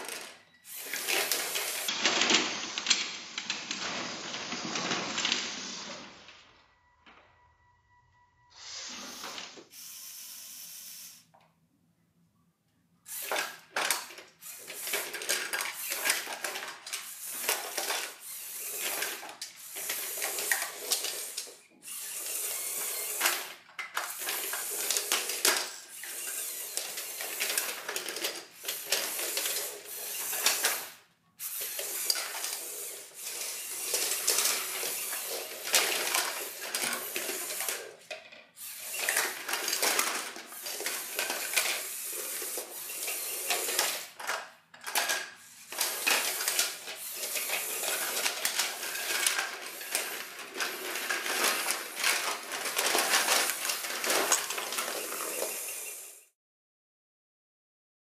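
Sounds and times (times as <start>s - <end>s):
toy electric motors running: 0.0s - 3.1s, 8.6s - 11.3s, 13.1s - 56.4s
plastic parts clattering: 0.0s - 5.4s, 13.1s - 56.3s.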